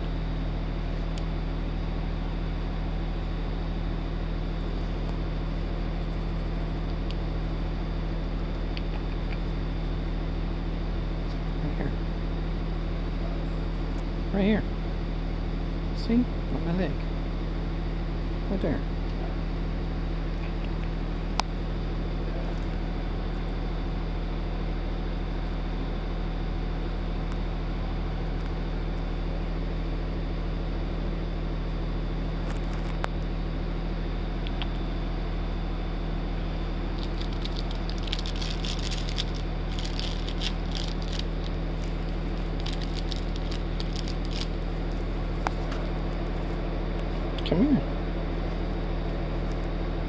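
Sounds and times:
machinery humming: 0.0 - 50.0.

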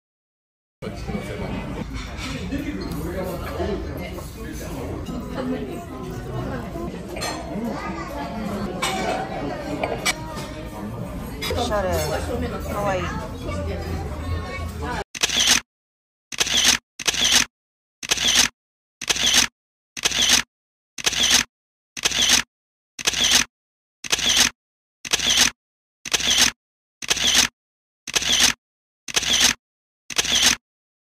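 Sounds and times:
camera shutter clicks: 15.2 - 15.6, 16.4 - 20.4, 21.0 - 22.4, 23.0 - 23.5, 24.1 - 24.5, 25.1 - 25.5, 26.1 - 27.5, 28.1 - 30.6.

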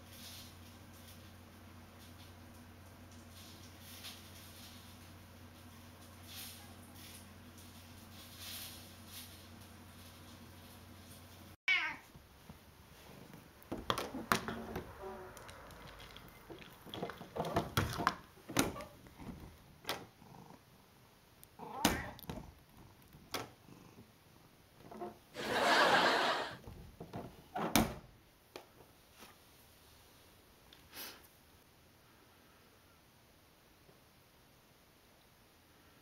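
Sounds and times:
noisy rustle: 0.0 - 11.6
cat meowing: 11.7 - 12.1, 21.6 - 22.2.

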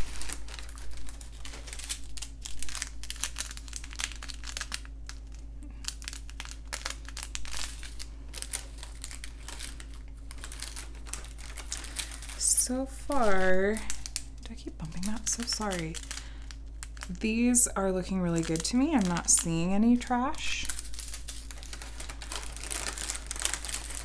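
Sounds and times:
plastic bags crinkling: 0.0 - 24.0.

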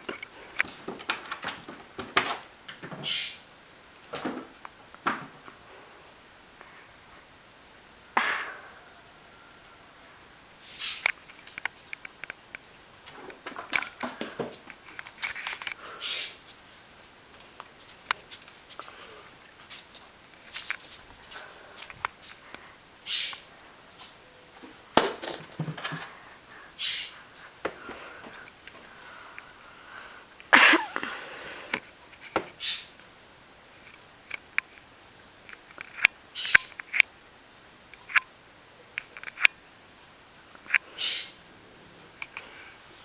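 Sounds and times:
scraping rustle: 13.1 - 16.8, 17.4 - 22.4
fridge magnets clicking and scuffing: 19.6 - 22.4.

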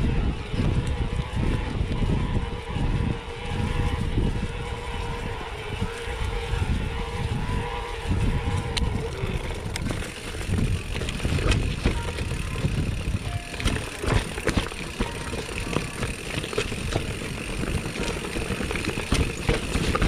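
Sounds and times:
bike tyre rumble: 0.0 - 20.0
wind buffeting microphone: 0.0 - 20.0
light ticks from bike: 8.6 - 20.0.

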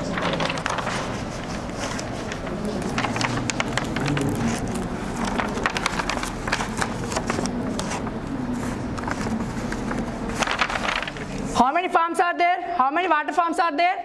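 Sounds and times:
stiff paper crackling: 0.0 - 11.6
steady background noise: 0.0 - 14.0.

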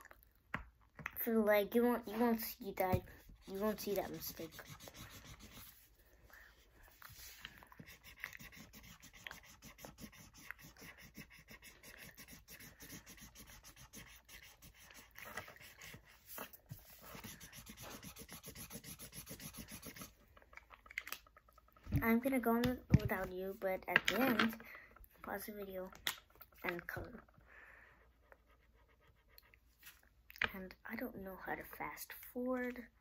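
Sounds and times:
marker scratching on paper: 2.0 - 5.9, 7.2 - 20.2.

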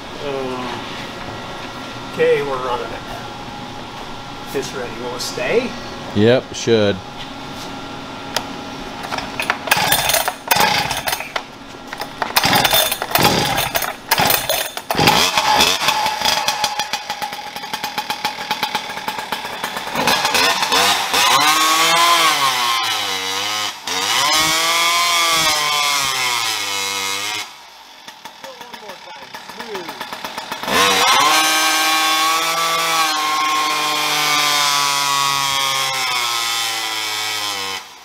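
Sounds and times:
chainsaw engine revving: 9.1 - 11.3, 12.0 - 38.0.

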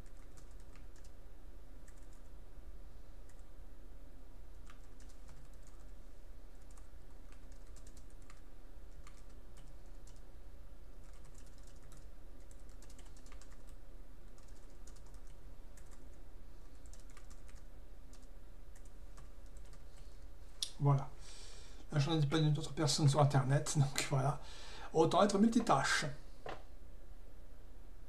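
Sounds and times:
low steady hum: 0.0 - 28.0
keyboard typing clicks: 1.8 - 2.3, 4.6 - 5.9, 6.6 - 10.2, 11.0 - 16.2, 16.8 - 19.8.

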